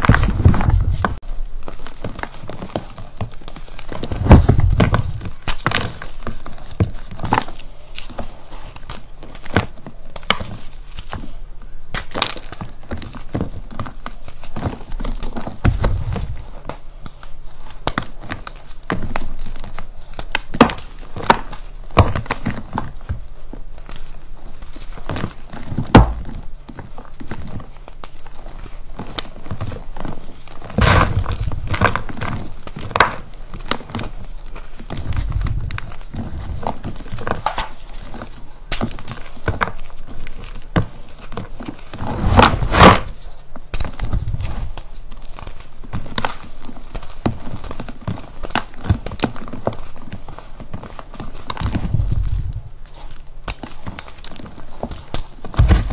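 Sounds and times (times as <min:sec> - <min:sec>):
chunks thudding onto pile: 0:04.1 - 0:05.4, 0:30.8 - 0:31.8, 0:55.6 - 0:55.9
chalk crunching and cracking: 0:27.0 - 0:55.9.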